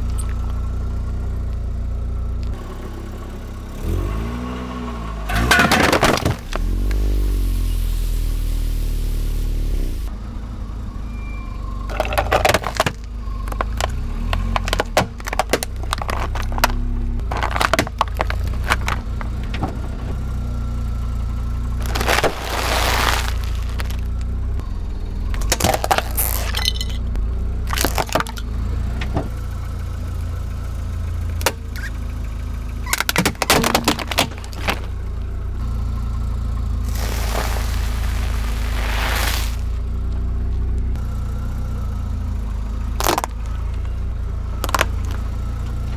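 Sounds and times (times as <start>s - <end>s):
car engine running low: 0.0s - 45.9s
plastic colander breaking: 5.3s - 6.6s, 11.9s - 19.1s, 21.8s - 24.1s, 25.4s - 27.0s, 33.0s - 34.9s
tyres crushing objects: 5.3s - 7.0s, 11.9s - 20.1s, 21.8s - 24.3s, 25.3s - 28.5s, 32.8s - 35.0s, 42.9s - 44.0s, 44.6s - 45.3s.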